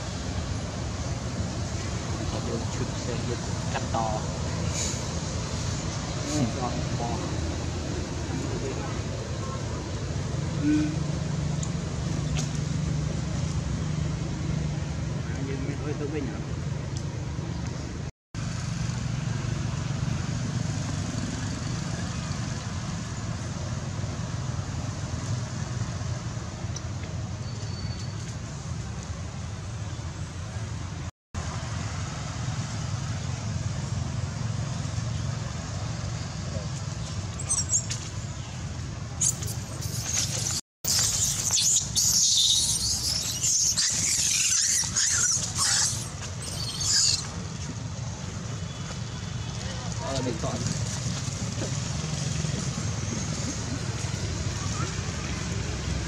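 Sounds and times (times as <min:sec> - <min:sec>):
road traffic rumble: 0:00.0 - 0:56.0
baby monkey screaming: 0:39.2 - 0:47.3.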